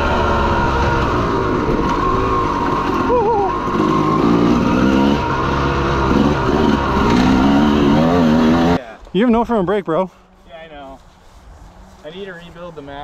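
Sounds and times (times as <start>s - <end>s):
dirt bike engine revving: 0.0s - 8.8s.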